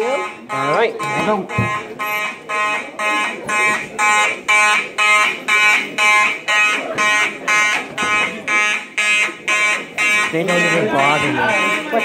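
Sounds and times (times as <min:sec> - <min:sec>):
fire alarm horn blasts: 0:00.0 - 0:12.0.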